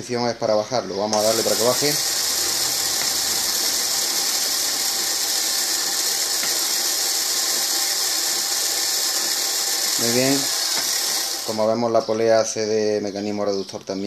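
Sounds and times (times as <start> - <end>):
small motor whirring: 1.2 - 11.8.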